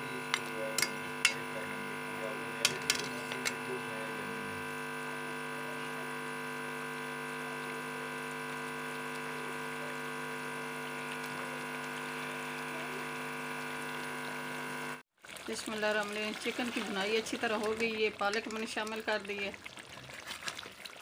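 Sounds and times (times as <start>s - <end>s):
steady hum: 0.0s - 15.0s
gravy simmering in a wok: 15.2s - 21.0s.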